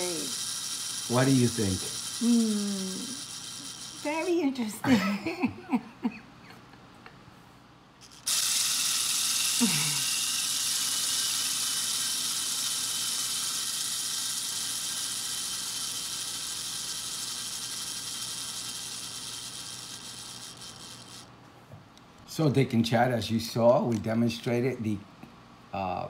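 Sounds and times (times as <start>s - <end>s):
clockwork gears whirring: 0.0s - 4.8s, 8.0s - 21.3s.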